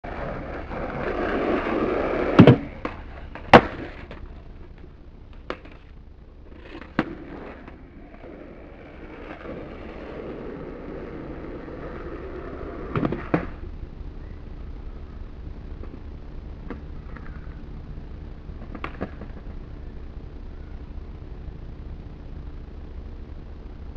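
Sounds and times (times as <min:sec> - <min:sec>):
skateboard wheels rolling on concrete: 0:00.0 - 0:23.9
skateboard clacks: 0:00.1 - 0:05.9, 0:06.5 - 0:13.6, 0:18.6 - 0:19.6
skateboard clatters: 0:00.1 - 0:05.9, 0:06.5 - 0:13.6, 0:18.6 - 0:19.6.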